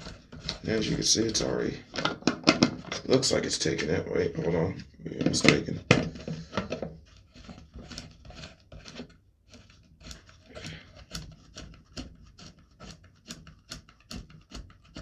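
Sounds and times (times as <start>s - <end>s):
hard plastic parts clicking: 1.8s - 3.2s.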